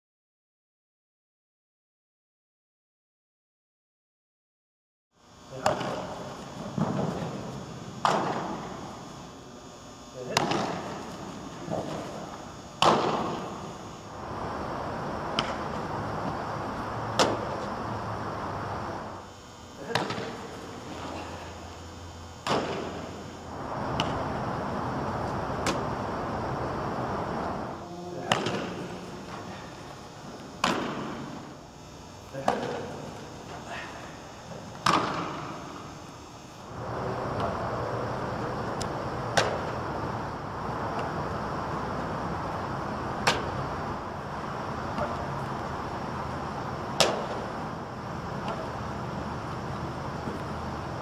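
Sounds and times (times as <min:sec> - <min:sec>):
football being caught slaps: 0:08.0 - 0:08.5, 0:10.3 - 0:11.0, 0:12.8 - 0:13.4, 0:15.3 - 0:15.6, 0:17.2 - 0:17.7, 0:19.8 - 0:21.1, 0:22.4 - 0:23.0, 0:23.9 - 0:24.2, 0:25.6 - 0:25.8, 0:28.2 - 0:28.8, 0:30.6 - 0:31.2, 0:34.8 - 0:35.6, 0:39.3 - 0:39.7, 0:43.2 - 0:43.6, 0:47.0 - 0:47.4
steady rushing background noise: 0:10.8 - 0:19.2, 0:20.0 - 0:30.4, 0:36.7 - 0:51.0
steady rushing noise: 0:14.0 - 0:19.2, 0:23.0 - 0:27.8.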